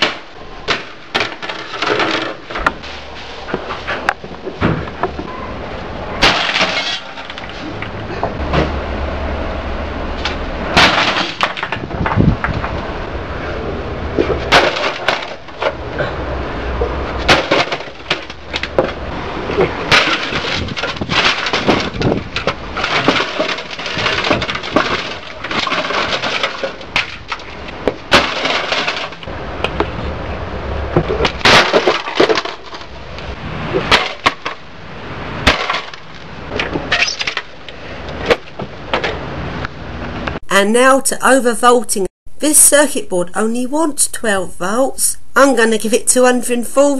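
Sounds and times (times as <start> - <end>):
boards cracking and breaking: 0.0 - 3.0, 6.2 - 7.9, 10.2 - 12.8, 14.2 - 15.9, 17.1 - 30.0, 30.9 - 39.3
computer case being smashed: 6.2 - 7.6, 10.7 - 11.9, 14.4 - 15.8, 17.2 - 19.0, 19.6 - 29.3, 31.2 - 32.9, 33.8 - 34.7, 35.4 - 37.6
metal clattering: 6.2 - 8.7, 14.2 - 15.9, 17.2 - 29.3.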